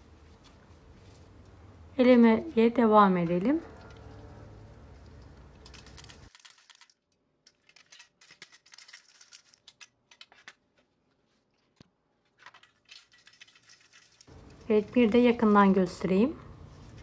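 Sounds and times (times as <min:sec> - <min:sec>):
crumbs rattling in metal sieve: 0:05.0 - 0:09.8, 0:12.7 - 0:15.8.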